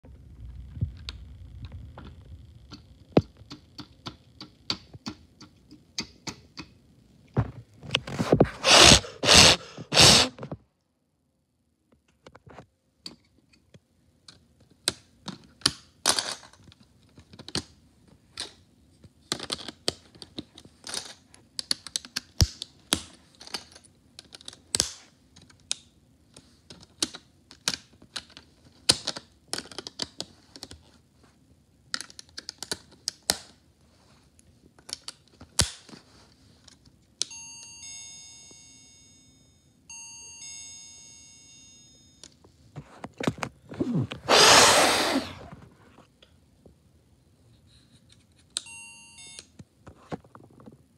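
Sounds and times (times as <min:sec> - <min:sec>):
plastic parts clicking: 0:19.3 - 0:30.8.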